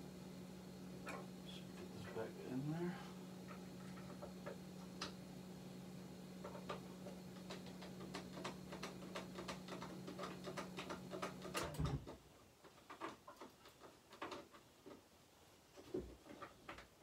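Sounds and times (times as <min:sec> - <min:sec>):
steady low hum: 0:00.0 - 0:12.1.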